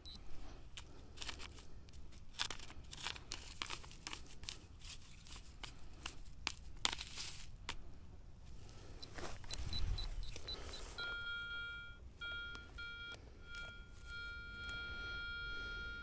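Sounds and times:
metal detector beeping: 0:00.0 - 0:01.6, 0:09.0 - 0:16.0
metal detector steady tone: 0:00.0 - 0:01.7, 0:08.9 - 0:16.0
rustling handling noise: 0:00.1 - 0:16.0.

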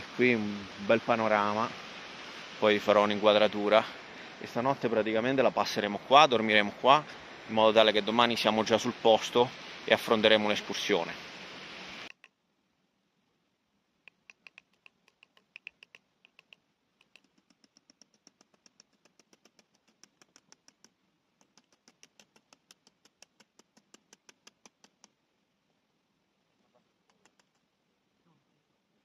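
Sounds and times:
faint sharp clicks: 0:14.0 - 0:25.2, 0:26.9 - 0:27.7.

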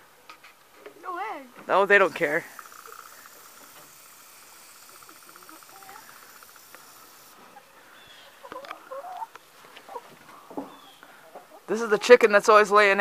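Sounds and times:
hen clucking: 0:02.0 - 0:12.3.

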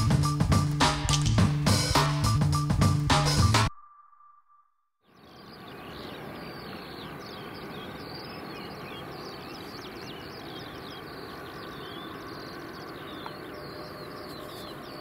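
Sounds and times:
small birds chirping: 0:05.0 - 0:15.0
distant jet engines: 0:05.2 - 0:15.0.

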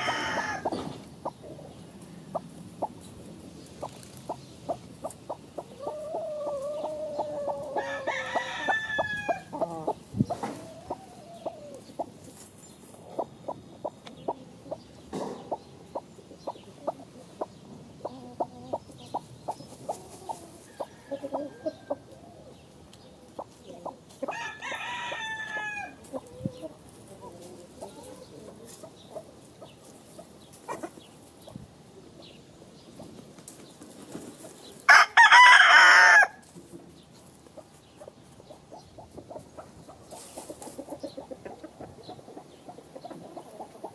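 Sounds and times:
rooster crowing: 0:00.0 - 0:00.7, 0:06.0 - 0:09.8, 0:24.3 - 0:26.0, 0:34.9 - 0:36.4
chickens scratching in dry leaves: 0:00.0 - 0:13.5, 0:18.9 - 0:43.9.

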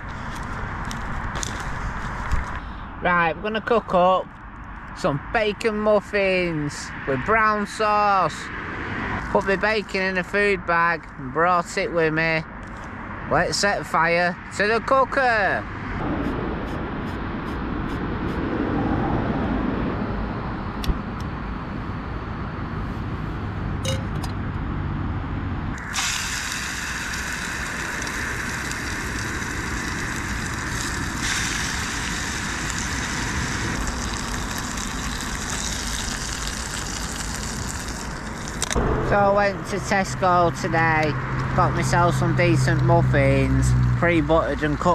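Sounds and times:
bacon sizzling in a pan: 0:25.8 - 0:38.6
gas stove burner rumbling: 0:25.8 - 0:41.3.

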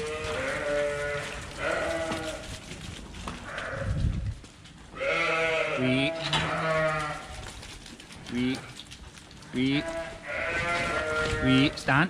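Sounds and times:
sheep bleating: 0:00.0 - 0:02.4, 0:03.4 - 0:04.0, 0:04.9 - 0:07.4, 0:09.6 - 0:11.9.

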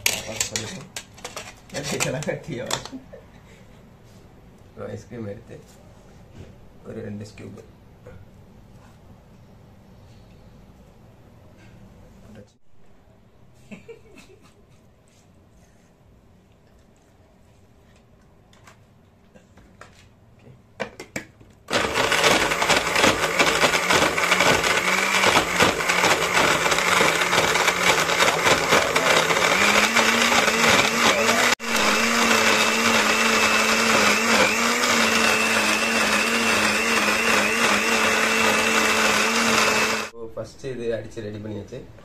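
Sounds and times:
blender motor running: 0:21.7 - 0:40.1.

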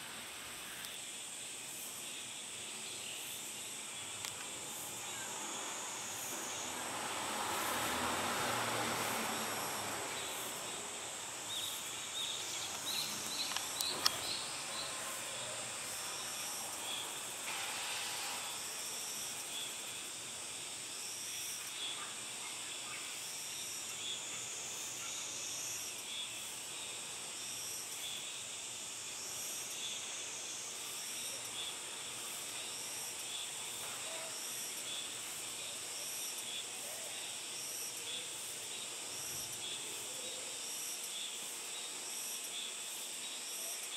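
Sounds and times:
insects buzzing and chirping: 0:00.0 - 0:43.9
vehicle passing: 0:05.3 - 0:13.3.

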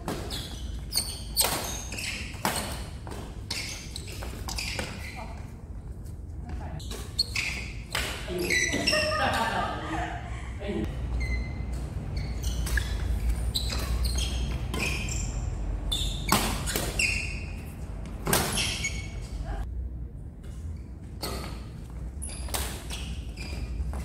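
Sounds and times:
shoes squeaking on court: 0:00.0 - 0:09.5, 0:11.0 - 0:19.7, 0:20.4 - 0:24.0
rackets hitting shuttlecock: 0:12.5 - 0:15.4.

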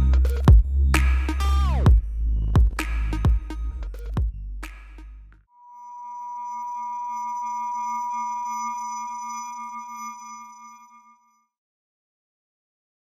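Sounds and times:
held electronic jingle tone: 0:05.6 - 0:11.4.

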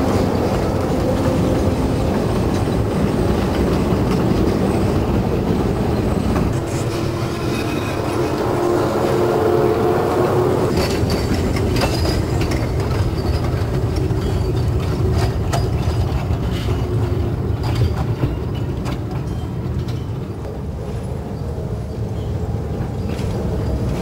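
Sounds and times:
wheels clattering over rail joints: 0:00.0 - 0:08.9, 0:10.7 - 0:20.7
high wheel squeaks: 0:00.0 - 0:20.2
train rumbling past: 0:00.0 - 0:24.0.

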